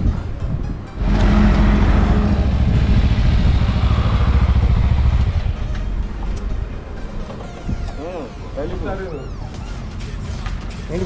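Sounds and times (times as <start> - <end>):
motorcycle engine idling: 1.0 - 7.2.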